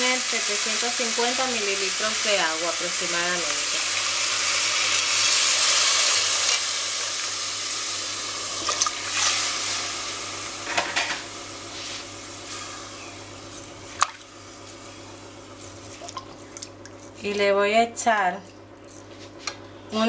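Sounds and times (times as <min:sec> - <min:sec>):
water sizzling in hot oil: 0:00.0 - 0:14.9.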